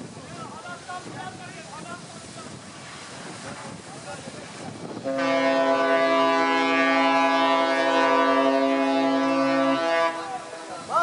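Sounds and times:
surf: 0.0s - 11.0s
wind: 0.0s - 11.0s
ship's horn blast: 5.0s - 10.9s.

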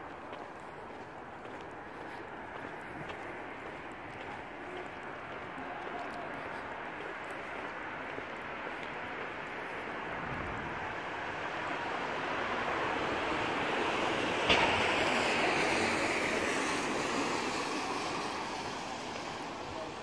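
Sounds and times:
tyres hissing on wet road: 5.6s - 20.0s.

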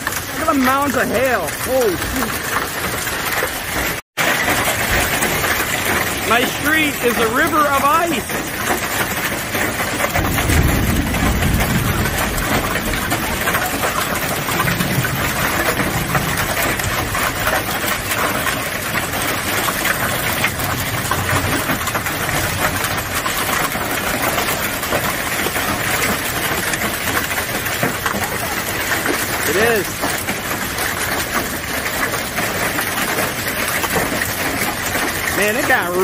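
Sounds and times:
hail clattering on cars: 0.0s - 36.0s.

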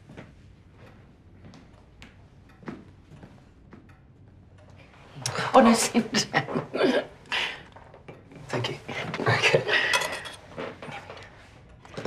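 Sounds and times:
plates and cutlery clinking: 9.3s - 10.8s.

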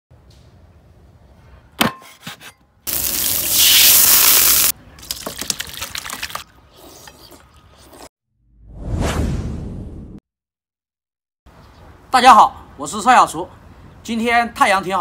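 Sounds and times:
loud steady hiss: 2.9s - 4.7s
stew splashing and dripping: 5.0s - 7.6s
eating sounds: 5.0s - 8.1s.

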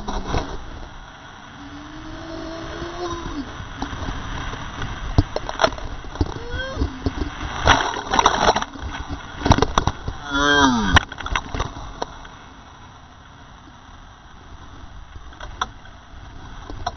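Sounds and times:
rapids rushing: 0.0s - 12.1s
whitewater splashing: 0.0s - 12.2s
person yelling: 6.4s - 7.0s, 10.3s - 11.0s.

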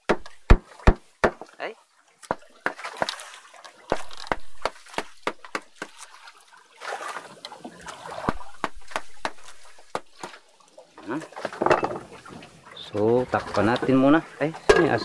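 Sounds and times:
scraping and sloshing: 2.2s - 15.0s
cooking utensils knocking: 11.6s - 12.0s, 14.6s - 15.0s.

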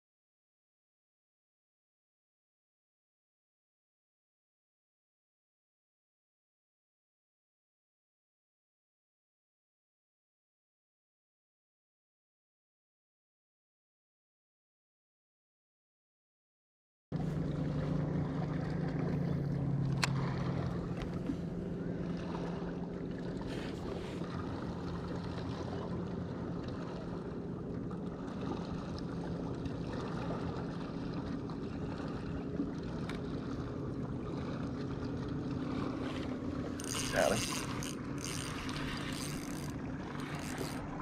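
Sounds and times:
wind: 17.1s - 41.0s
water noise: 17.2s - 41.0s
electric motor humming: 35.9s - 41.0s.

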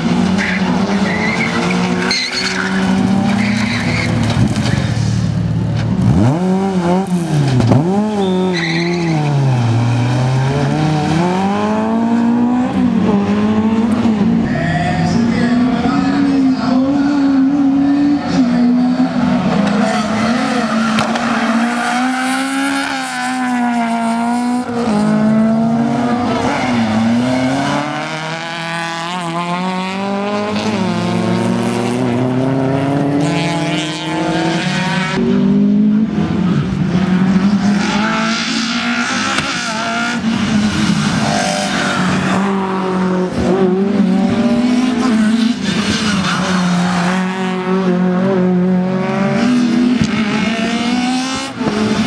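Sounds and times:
car engines revving hard: 0.0s - 52.0s
tyres squealing: 0.4s - 4.9s, 7.8s - 9.8s.

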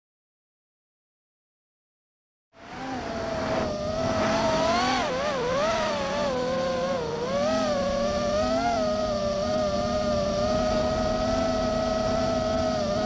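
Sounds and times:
quadcopter motors whining: 2.6s - 13.0s.

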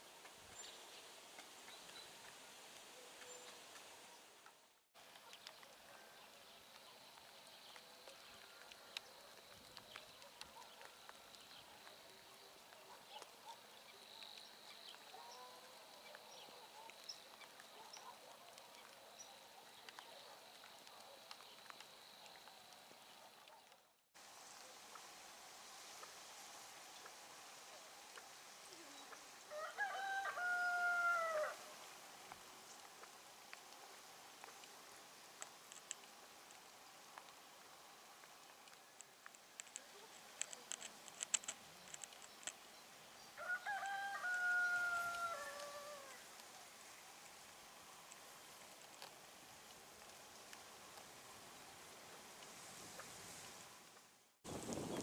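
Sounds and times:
light rain falling on river: 0.0s - 55.0s
rooster crowing: 29.5s - 31.7s, 43.4s - 46.2s
faint sharp ticks: 32.3s - 37.4s.

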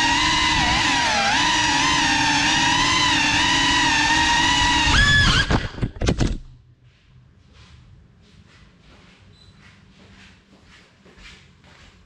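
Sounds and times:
drone motors whining: 0.0s - 6.1s.

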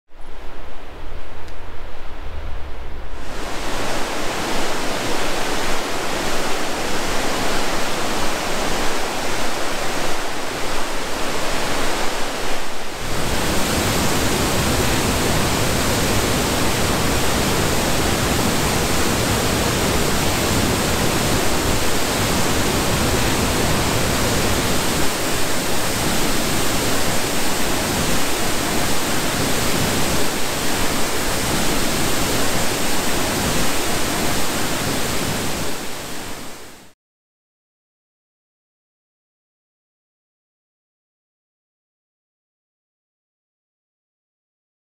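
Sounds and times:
waterfall rushing: 1.8s - 36.9s.

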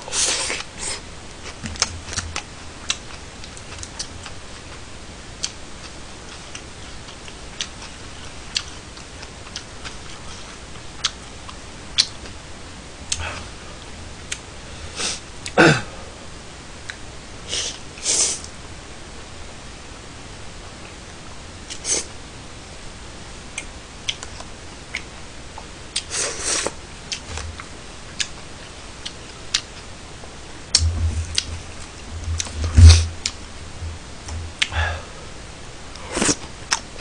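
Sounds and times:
man chewing: 0.0s - 4.7s, 5.4s - 12.4s, 23.5s - 29.9s, 30.7s - 33.4s, 35.9s - 37.0s
hissy slurp or sniff: 17.5s - 18.5s, 26.1s - 26.7s.

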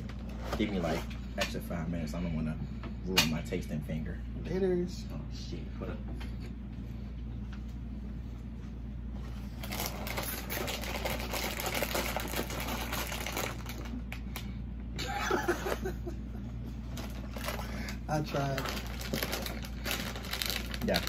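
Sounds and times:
plastic bag crinkling: 9.6s - 14.4s, 16.9s - 21.0s.

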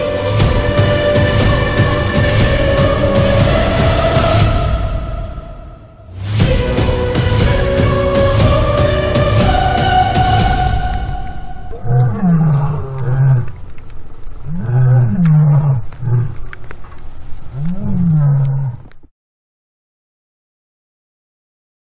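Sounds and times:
music: 0.0s - 11.8s
lion roaring: 11.6s - 13.6s, 14.4s - 16.5s, 17.5s - 18.9s.

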